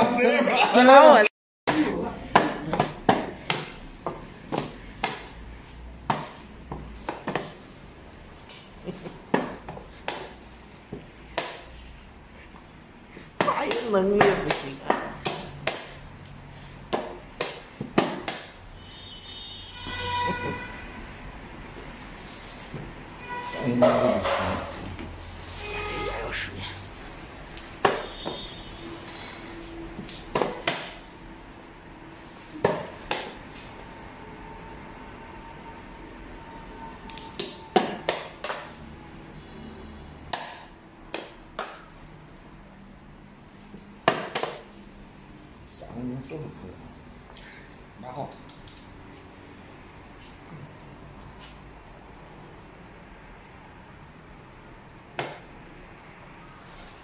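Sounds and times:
horn-like tone: 0:18.8 - 0:21.2, 0:23.1 - 0:24.8, 0:25.4 - 0:26.5, 0:28.0 - 0:29.9, 0:34.1 - 0:37.7.

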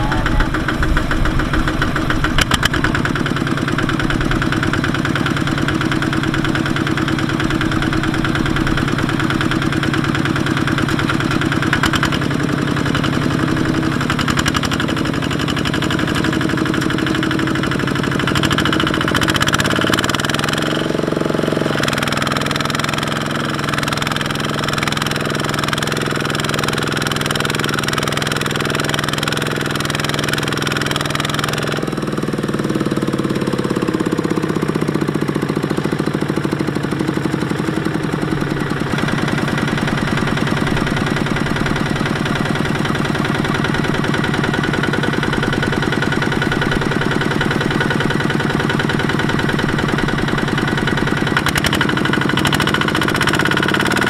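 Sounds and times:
diesel tractor engine knocking: 0:00.0 - 0:54.0.

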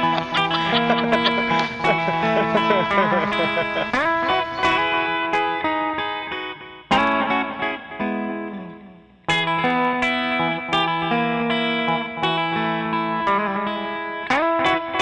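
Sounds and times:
plucked guitar music: 0:00.0 - 0:15.0.

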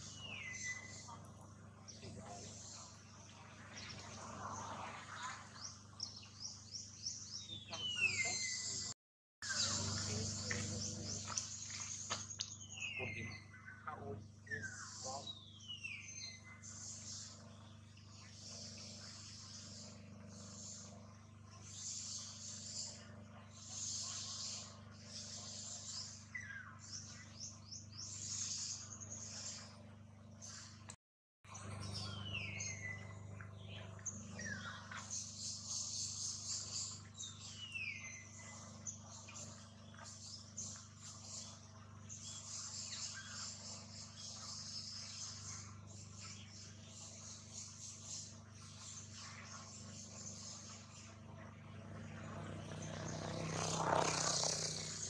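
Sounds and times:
faint insects buzzing: 0:00.0 - 0:30.8, 0:31.6 - 0:55.0
steady low hum: 0:00.0 - 0:55.0.

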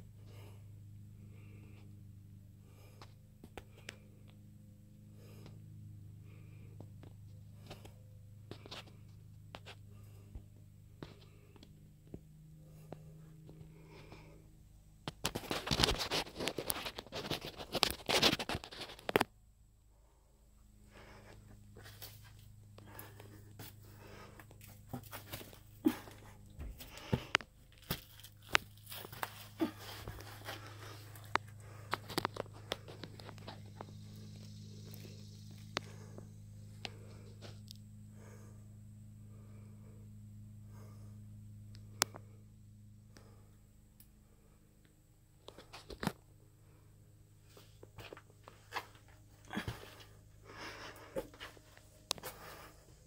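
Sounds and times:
steady low hum: 0:00.0 - 0:53.0
person shifting in crawlspace: 0:15.0 - 0:19.4, 0:20.9 - 0:36.2, 0:47.4 - 0:53.0
crawling over plastic sheeting: 0:21.8 - 0:33.8.

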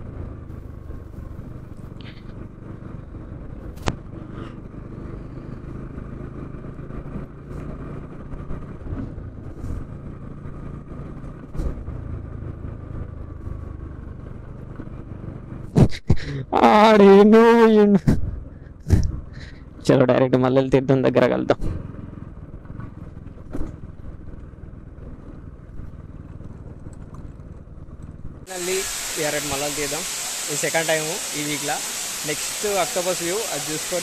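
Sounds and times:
motorcycle engine cruising: 0:00.0 - 0:34.0
knocks from bumps: 0:18.0 - 0:19.2, 0:22.8 - 0:23.8
person speaking: 0:28.5 - 0:34.0.

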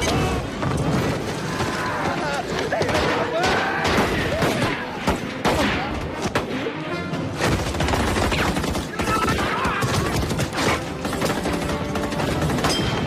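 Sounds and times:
film music score: 0:00.0 - 0:13.0.

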